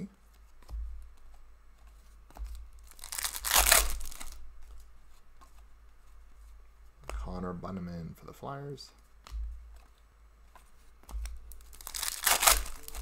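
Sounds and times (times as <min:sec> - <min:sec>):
foil wrapper tearing: 0:02.9 - 0:04.4, 0:11.7 - 0:13.0.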